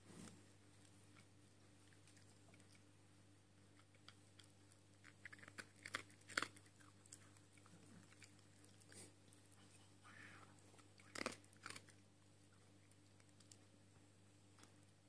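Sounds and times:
dog crunching dry kibble: 0:03.7 - 0:09.1, 0:10.7 - 0:12.0.

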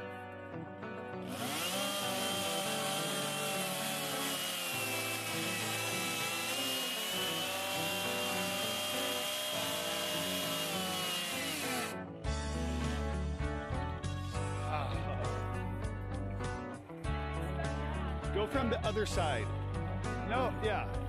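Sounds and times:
chainsaw cutting branch: 0:01.3 - 0:12.0.

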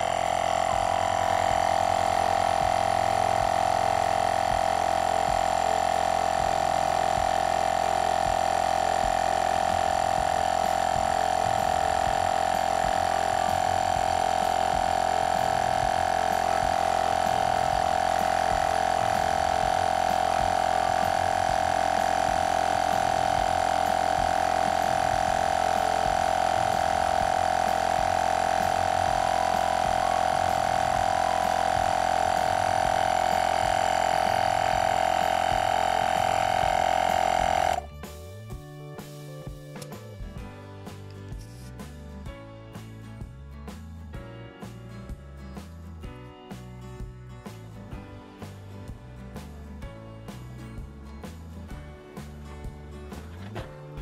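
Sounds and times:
air compressor humming: 0:00.0 - 0:42.0.

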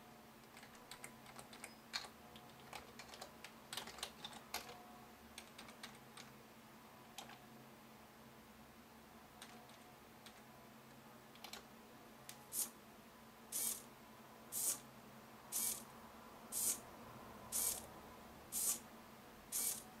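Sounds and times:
servo motor whirring: 0:13.6 - 0:13.8, 0:14.6 - 0:14.8, 0:15.6 - 0:15.8, 0:16.6 - 0:16.8, 0:17.6 - 0:17.8, 0:18.6 - 0:18.8, 0:19.5 - 0:19.9.

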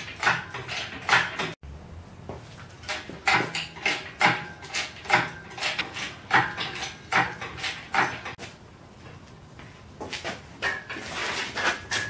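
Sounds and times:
clunks and knocks: 0:00.0 - 0:01.6, 0:02.3 - 0:08.4.

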